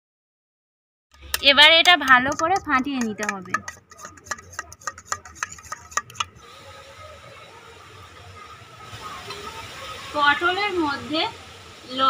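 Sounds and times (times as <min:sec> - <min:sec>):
spoon clinking against steel bowl: 0:01.3 - 0:06.4
faint steady hiss: 0:06.4 - 0:12.0.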